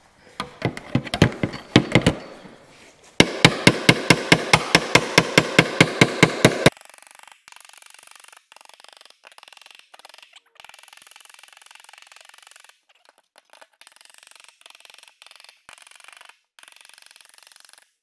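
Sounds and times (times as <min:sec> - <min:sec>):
hammer striking sheet steel: 0:00.4 - 0:02.6, 0:03.2 - 0:06.7.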